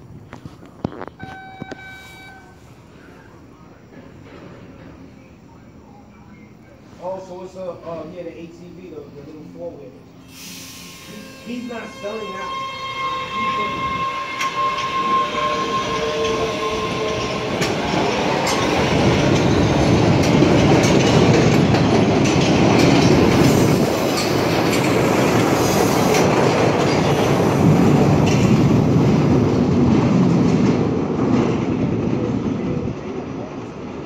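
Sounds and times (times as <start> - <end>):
train wheels clattering on rails: 3.9 - 5.1, 14.0 - 34.0
train motor whine: 10.3 - 19.5.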